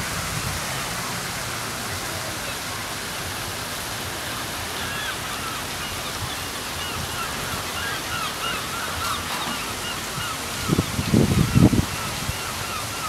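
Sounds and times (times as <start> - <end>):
steady rushing hiss: 0.0 - 13.0.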